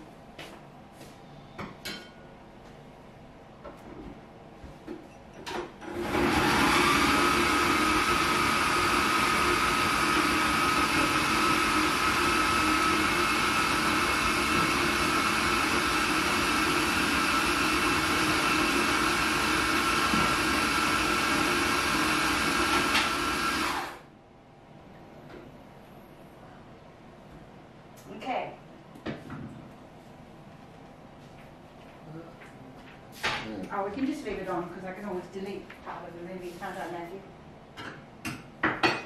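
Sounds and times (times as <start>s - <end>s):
electric blender running: 5.8s - 24.1s.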